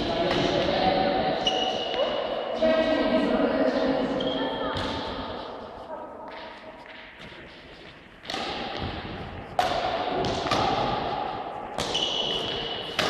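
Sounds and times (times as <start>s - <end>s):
racket hitting shuttlecock: 4.7s - 5.6s, 8.2s - 13.0s.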